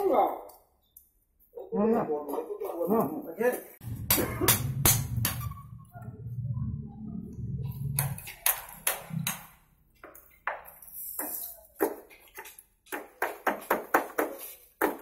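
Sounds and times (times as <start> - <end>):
hand tools tapping on bamboo: 8.0 - 15.0.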